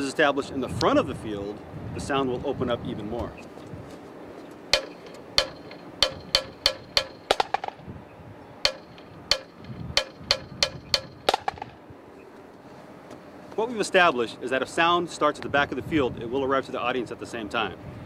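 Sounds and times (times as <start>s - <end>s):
marching snare drum hits: 4.7s - 7.8s, 8.6s - 11.7s.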